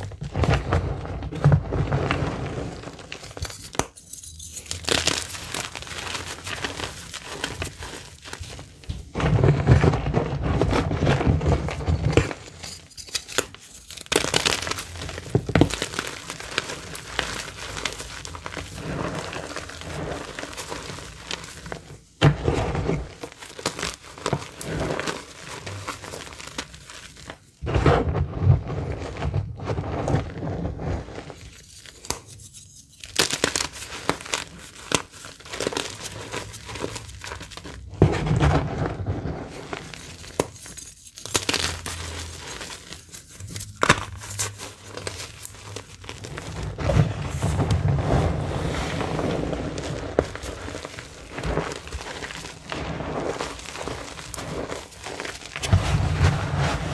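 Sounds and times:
chalk crunching in hands: 0:02.8 - 0:08.7, 0:30.8 - 0:37.8, 0:39.6 - 0:56.9.

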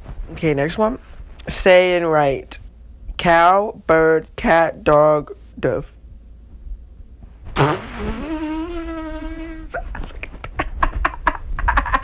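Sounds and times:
person making long wordless sound: 0:07.6 - 0:10.0
stifled breathy laughter: 0:09.4 - 0:12.0.

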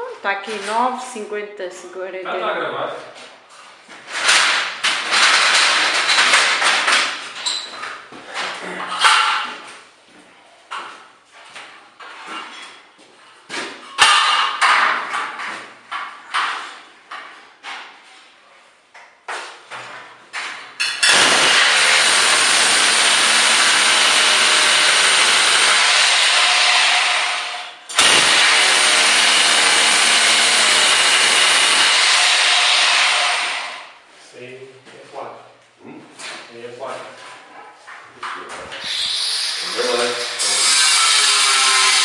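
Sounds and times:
sharp knocks and clatter: 0:04.0 - 0:09.8, 0:13.5 - 0:18.0
hammer drill drilling into ceiling: 0:04.2 - 0:07.1, 0:21.0 - 0:33.9, 0:38.8 - 0:42.0.

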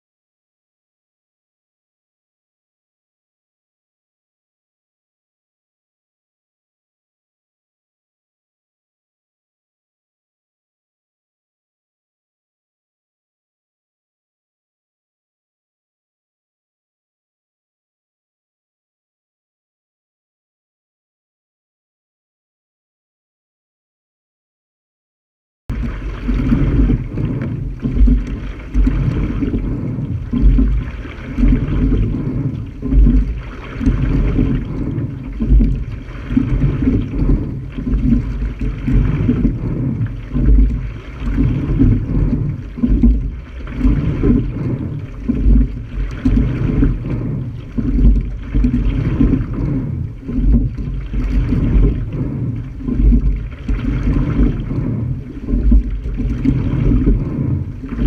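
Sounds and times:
rowing shell rushing through water: 0:25.7 - 0:58.0
wind rumble on microphone: 0:25.7 - 0:58.0.

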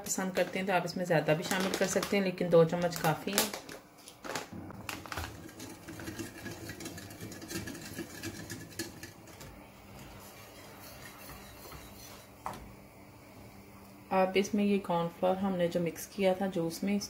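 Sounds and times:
whisk clicking against bowl: 0:05.5 - 0:09.4.

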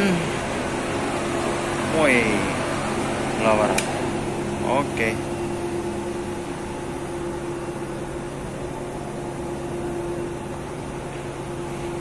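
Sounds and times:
engine room machinery hum: 0:00.0 - 0:12.0.

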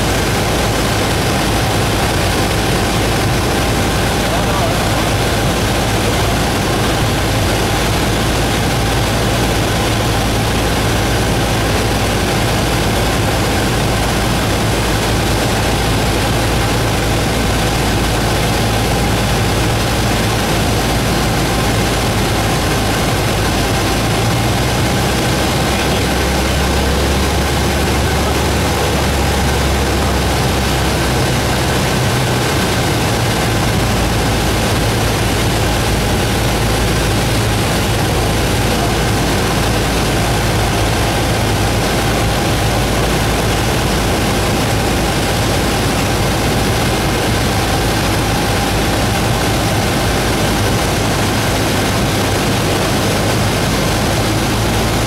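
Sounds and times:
propeller plane engine drone: 0:00.0 - 0:55.0.

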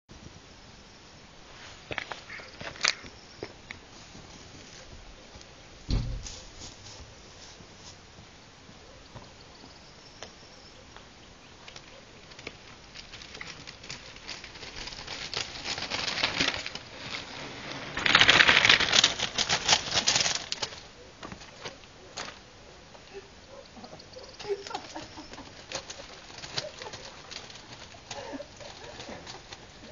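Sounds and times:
birds' wings flapping: 0:11.7 - 0:22.4, 0:24.0 - 0:29.9.

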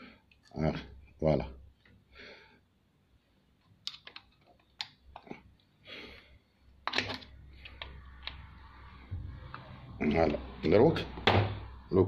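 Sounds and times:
screwdriver clicks and metal taps: 0:03.8 - 0:05.3, 0:06.8 - 0:08.4.

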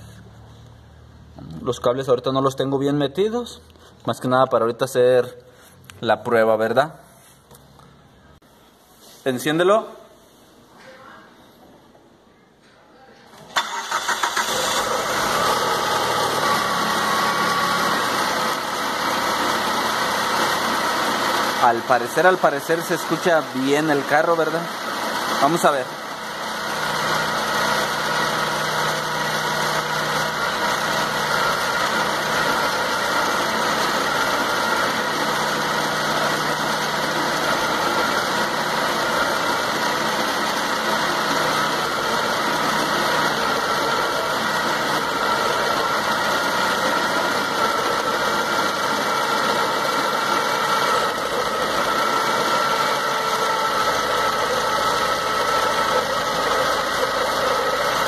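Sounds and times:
car engine idling: 0:13.6 - 0:58.0.

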